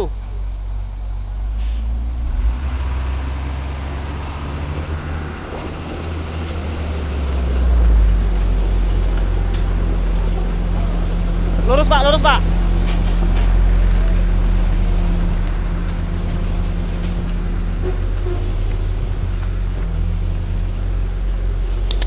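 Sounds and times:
truck diesel engine straining: 0:00.0 - 0:22.0
man talking: 0:11.6 - 0:12.5.

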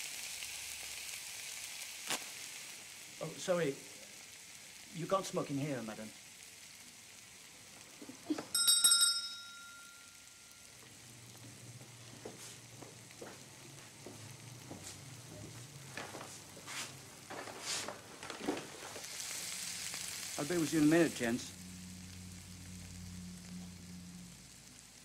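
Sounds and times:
steak sizzling in a frying pan: 0:00.0 - 0:25.0
shop door bell jingling: 0:08.5 - 0:10.7.

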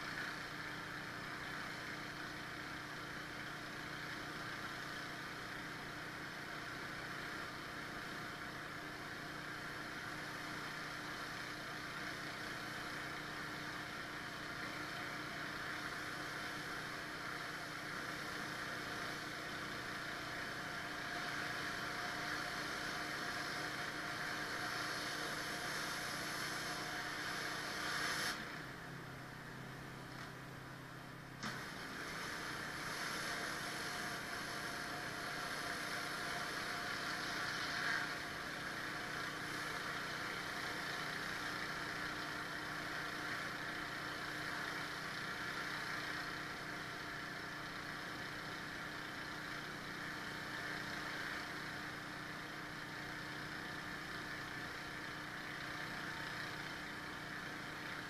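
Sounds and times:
pressure washer engine running: 0:00.0 - 0:58.0
high-pressure water hissing: 0:21.0 - 0:28.5, 0:31.7 - 0:41.9.

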